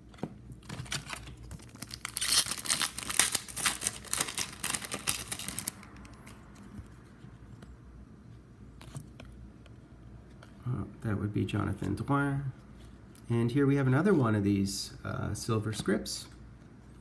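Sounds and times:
foil wrapper tearing and crinkling: 0.6s - 6.3s.

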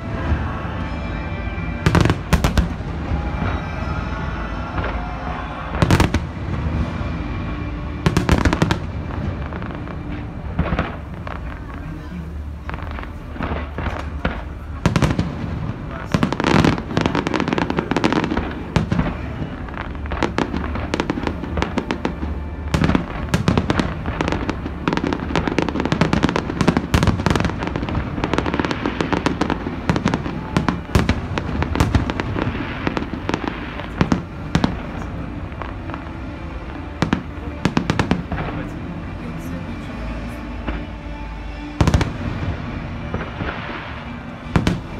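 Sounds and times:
fireworks bangs and crackles: 0.0s - 44.9s.

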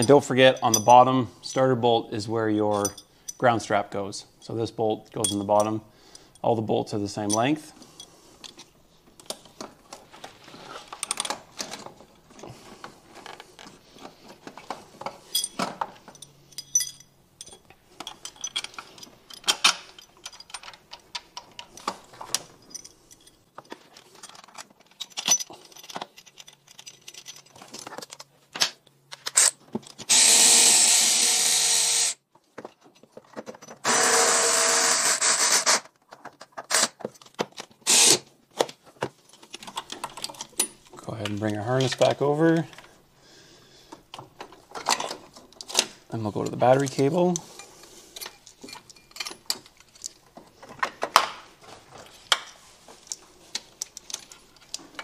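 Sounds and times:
metallic clinks of tools: 0.0s - 1.7s, 2.7s - 3.4s, 4.4s - 6.5s, 15.2s - 21.8s, 22.6s - 23.5s, 46.8s - 50.2s
cordless power tool running: 30.1s - 32.2s, 33.8s - 35.8s.

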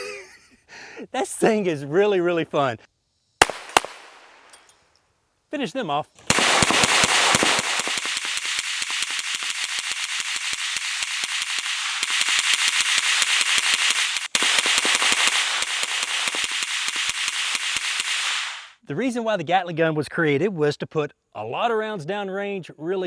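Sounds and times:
gatling gun rapid shots: 6.3s - 18.7s.

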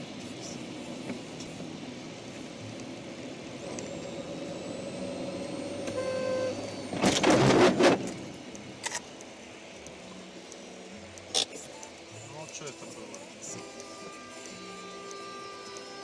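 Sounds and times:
car tyres on wet road: 0.2s - 8.9s
car horn: 6.0s - 6.6s
loud car collision: 6.9s - 8.1s.

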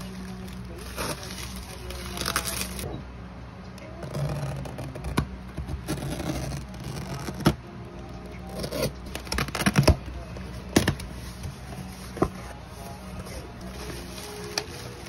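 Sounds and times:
bubble wrap and paper crinkling: 0.0s - 2.9s, 8.5s - 15.0s.

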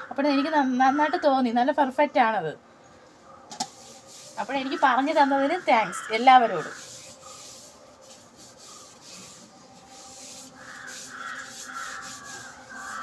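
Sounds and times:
hand rubbing ash on metal pot: 3.6s - 13.0s.

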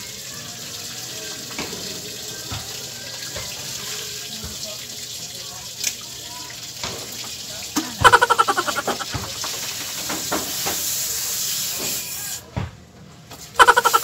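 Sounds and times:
water spraying from broken pipe: 6.8s - 12.2s
loud pulsing cry: 8.0s - 9.1s, 13.6s - 14.0s.

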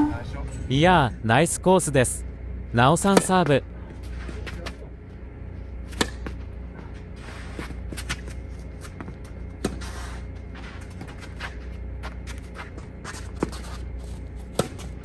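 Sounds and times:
tennis ball struck by racquets: 5.9s - 6.4s
shoes scuffing on hard court: 7.2s - 15.0s.

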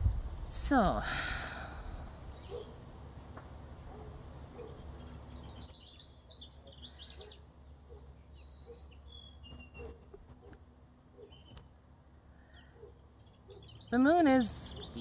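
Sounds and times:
steady low rumble: 0.0s - 3.9s
small birds chirping: 1.7s - 3.1s, 3.8s - 15.0s.

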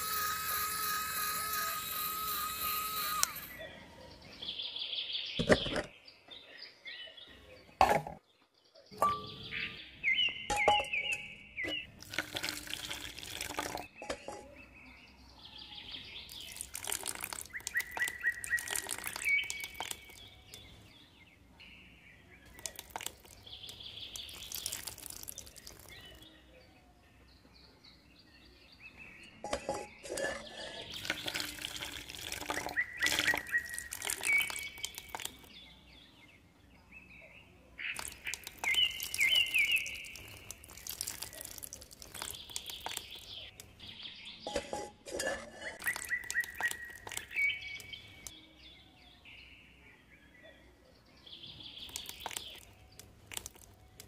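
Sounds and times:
birds chirping: 2.7s - 54.0s
clicks and scrapes: 29.4s - 33.6s, 44.4s - 48.0s.

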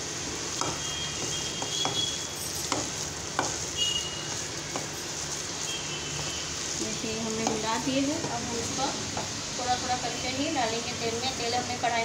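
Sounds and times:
hand squelching wet potato mix: 2.9s - 8.7s.

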